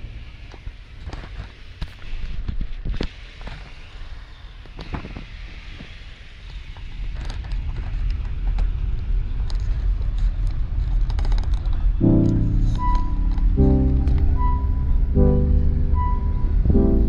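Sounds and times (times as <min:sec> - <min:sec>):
car road and engine rumble: 0:00.0 - 0:17.0
light creaks and clicks: 0:09.4 - 0:14.6
music: 0:12.0 - 0:17.0.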